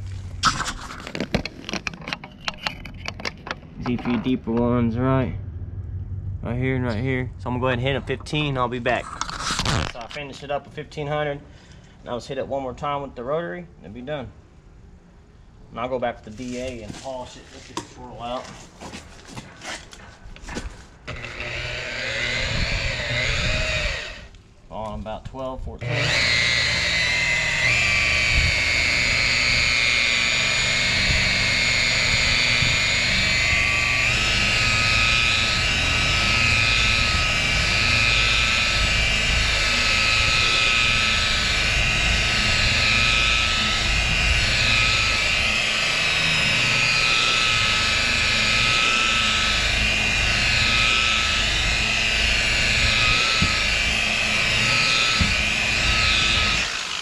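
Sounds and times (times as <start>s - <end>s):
rotary polisher motor whine: 21.1s - 24.4s, 25.8s - 57.0s.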